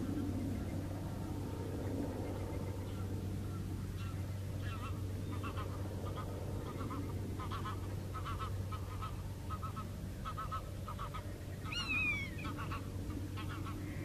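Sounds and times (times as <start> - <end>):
steady low hum: 0.0 - 14.0
falling whistled call: 11.8 - 12.4.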